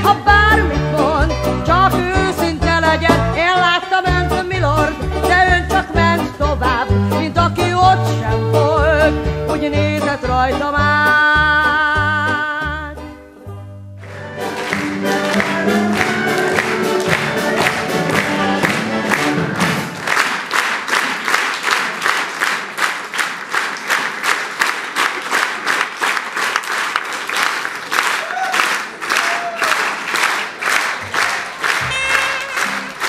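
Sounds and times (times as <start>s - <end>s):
live band playing: 0.0s - 20.2s, 30.9s - 33.0s
audience clapping in unison: 14.0s - 33.0s.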